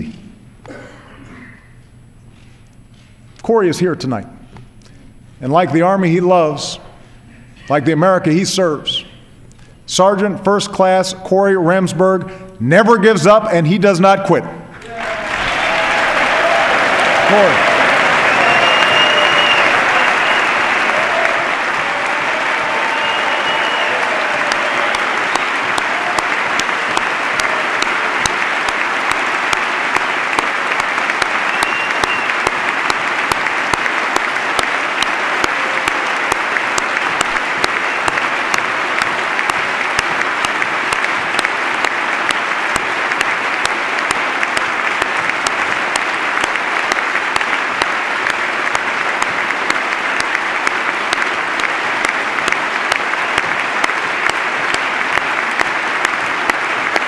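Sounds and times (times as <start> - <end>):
large crowd applauding: 14.8 - 57.0.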